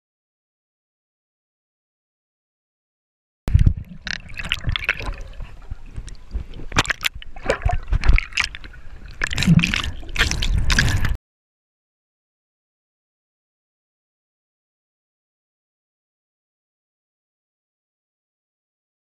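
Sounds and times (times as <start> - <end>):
water splashing against camera: 3.5 - 11.2.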